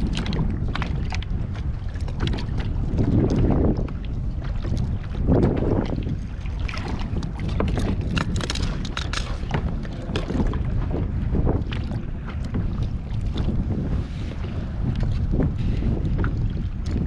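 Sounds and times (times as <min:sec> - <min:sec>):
wind rumbling on microphone: 0:00.0 - 0:17.0
fishing tackle clicking and knocking: 0:07.8 - 0:09.7.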